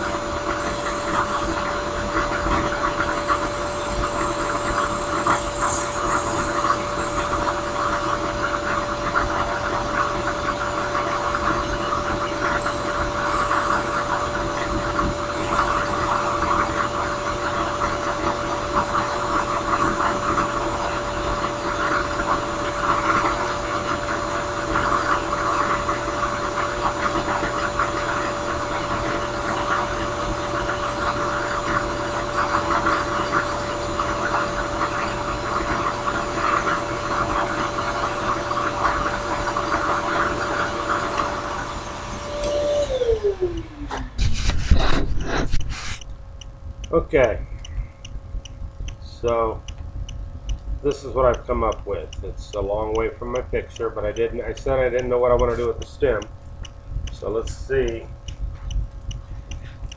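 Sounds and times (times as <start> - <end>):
drill press motor hum: 0.0 - 59.9
wood sanding rasp: 44.2 - 46.0.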